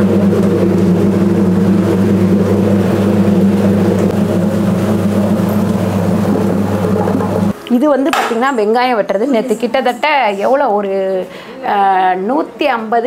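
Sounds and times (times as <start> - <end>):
machine motor humming: 0.0 - 7.6
onions churning in drum: 0.0 - 7.6.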